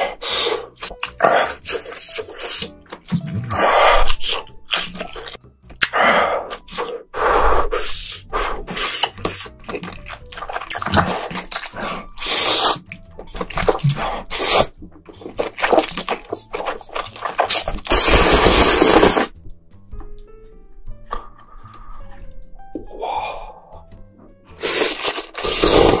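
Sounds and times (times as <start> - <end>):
noodles slurped: 0.3 - 7.0, 7.8 - 19.3, 24.5 - 26.0
wet chewing: 0.7 - 7.1, 8.1 - 20.4, 24.5 - 26.0.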